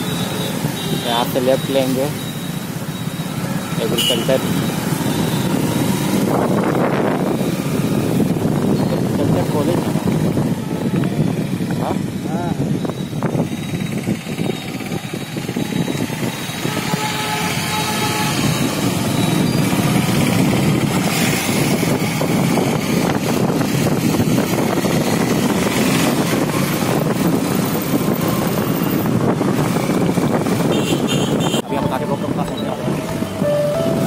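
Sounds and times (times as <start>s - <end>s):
motorcycle engine riding: 0.0s - 34.0s.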